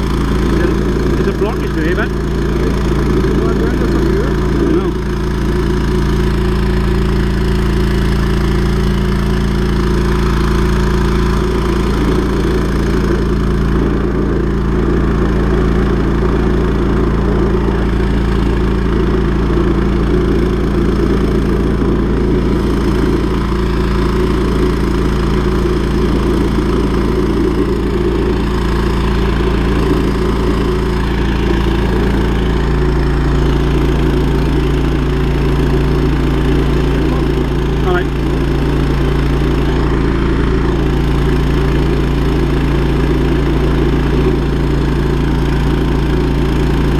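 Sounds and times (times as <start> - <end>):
engine and pump running: 0.0 - 46.9.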